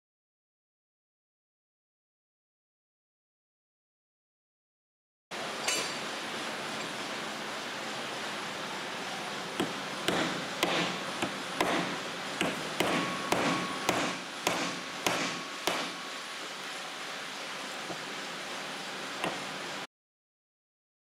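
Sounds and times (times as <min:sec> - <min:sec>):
hammer striking metal clamp: 0:09.6 - 0:15.9.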